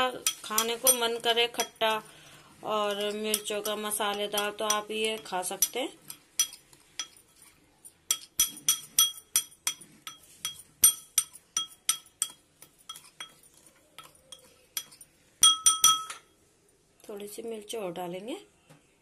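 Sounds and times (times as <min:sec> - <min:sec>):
spoon clinking against glass bowl: 0:00.0 - 0:16.3.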